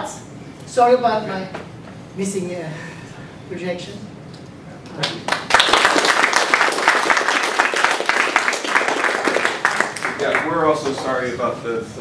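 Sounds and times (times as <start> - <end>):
audience applauding: 5.0 - 11.2.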